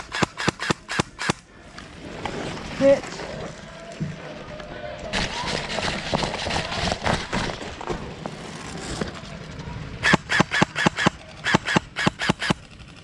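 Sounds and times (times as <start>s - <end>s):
airsoft rifle shots: 0.0s - 1.4s, 10.0s - 12.7s.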